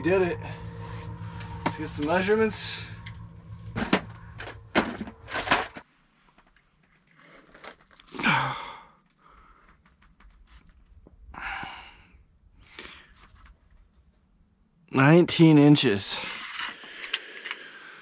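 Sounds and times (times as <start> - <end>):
person sighing: 8.1 - 9.0, 11.3 - 12.1.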